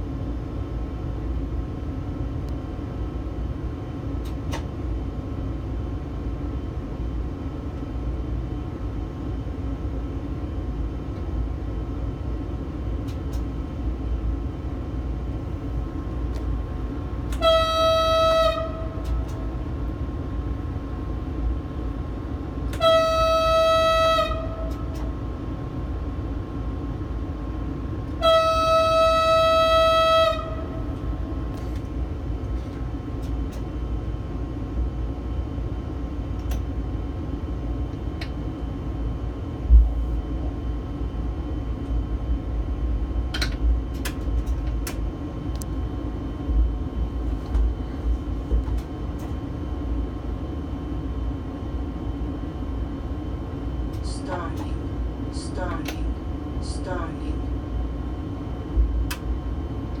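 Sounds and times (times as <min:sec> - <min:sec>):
train cab rumble: 0:00.0 - 1:00.0
train horn blasts: 0:17.3 - 0:19.5, 0:22.7 - 0:25.1, 0:28.1 - 0:31.5.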